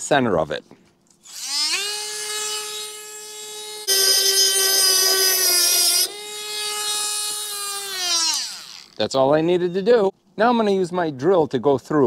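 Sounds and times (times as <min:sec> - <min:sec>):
rotary tool grinding metal: 0:01.2 - 0:09.0
rotary tool whining: 0:01.2 - 0:09.0.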